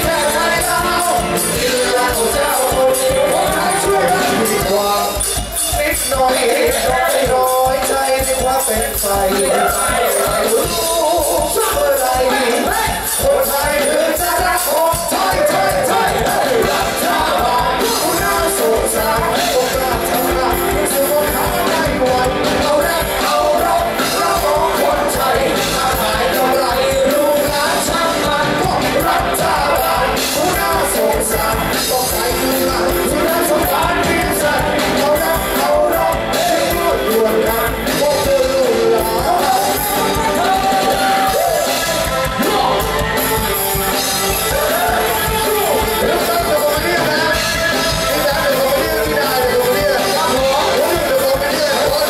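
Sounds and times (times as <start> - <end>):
person singing with band: 0.0 - 52.0.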